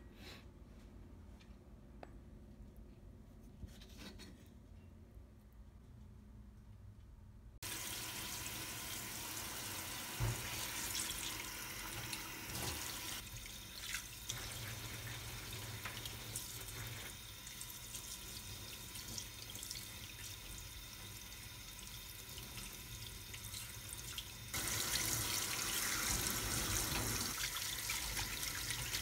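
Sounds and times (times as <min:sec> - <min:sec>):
water running into sink: 0:07.6 - 0:29.0.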